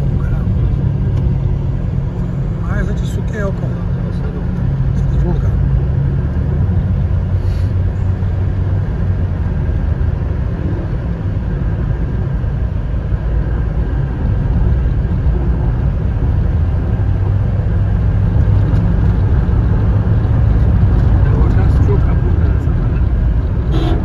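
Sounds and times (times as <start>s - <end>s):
car road and engine noise: 0.0s - 24.0s.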